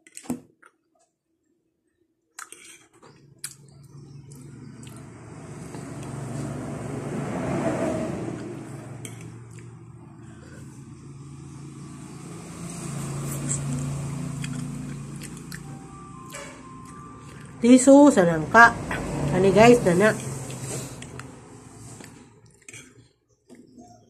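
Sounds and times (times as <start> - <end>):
vehicle engine passing: 3.6 - 22.9.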